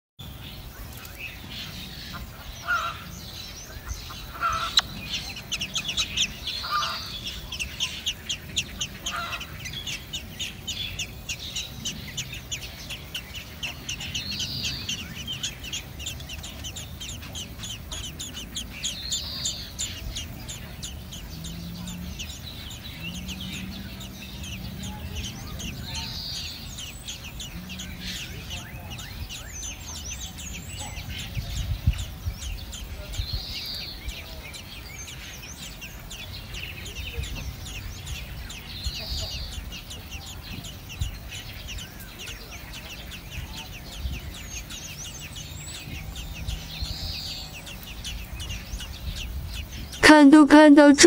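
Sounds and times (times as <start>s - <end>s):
nestlings cheeping: 1.0s - 51.0s
short low bird calls: 1.4s - 31.4s.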